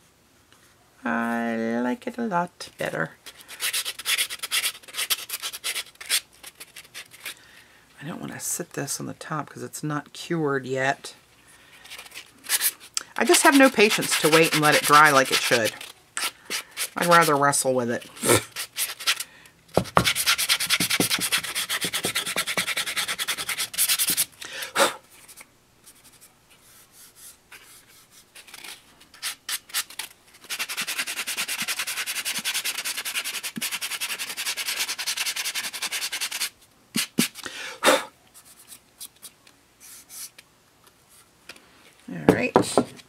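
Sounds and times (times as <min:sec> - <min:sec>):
sanding block rubbing: 0:03.5 - 0:06.2, 0:12.5 - 0:17.4, 0:18.4 - 0:19.2, 0:19.8 - 0:24.3, 0:30.4 - 0:37.4.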